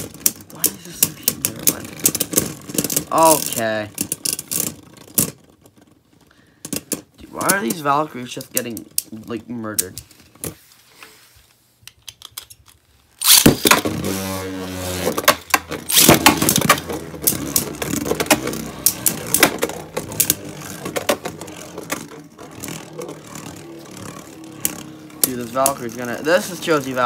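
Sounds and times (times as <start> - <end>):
spinning top launch whirring: 13.2 - 27.0
spinning tops clicking and rattling: 14.9 - 27.0.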